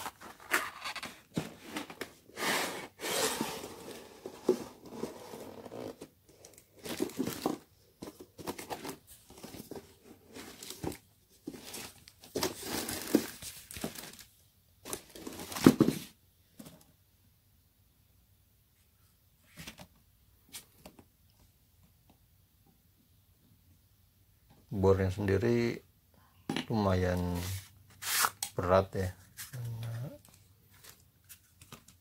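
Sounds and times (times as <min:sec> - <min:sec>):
cardboard rustling and crinkling: 0:00.0 - 0:16.7, 0:29.1 - 0:32.0.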